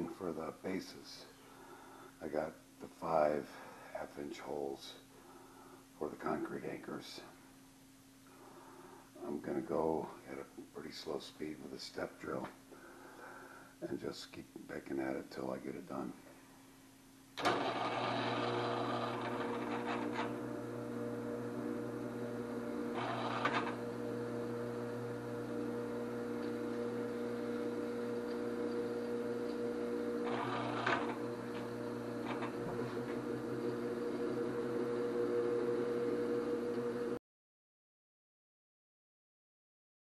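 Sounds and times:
drill bit scraping metal: 0:17.4 - 0:20.5, 0:22.9 - 0:24.0, 0:26.4 - 0:36.9
drill press running: 0:17.4 - 0:37.2.

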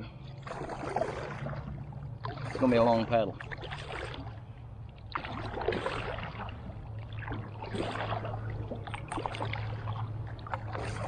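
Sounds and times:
steady low hum: 0:00.0 - 0:11.0
kayak paddle dipping into water: 0:00.4 - 0:11.0
water splashing and dripping: 0:00.4 - 0:11.0.

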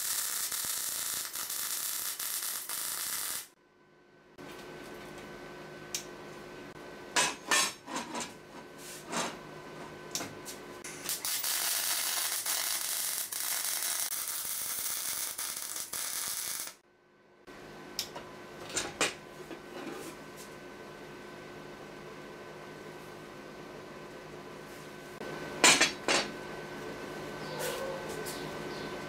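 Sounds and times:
welding arc sizzling: 0:00.0 - 0:03.6, 0:10.8 - 0:16.8.

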